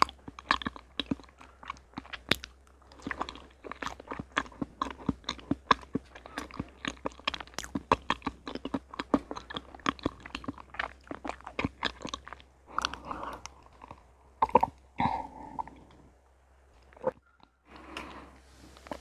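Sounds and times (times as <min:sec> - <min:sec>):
wet chewing clicks: 0:00.0 - 0:16.1, 0:16.8 - 0:19.0
rustle: 0:17.7 - 0:19.0.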